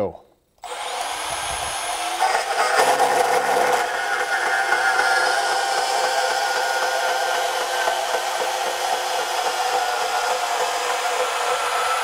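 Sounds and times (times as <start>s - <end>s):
band saw cutting through metal: 0.6s - 12.0s.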